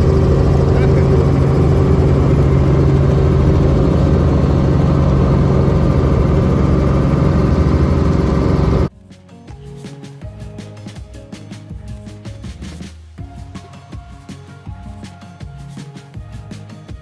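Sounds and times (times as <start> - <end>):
helicopter engine and rotor drone: 0.0 - 8.9.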